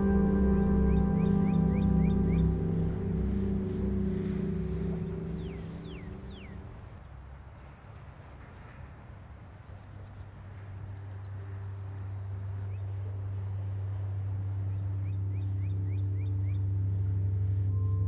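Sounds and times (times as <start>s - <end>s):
ambient music drone: 0.0s - 7.0s, 10.6s - 18.0s
bird chirping: 0.0s - 7.3s.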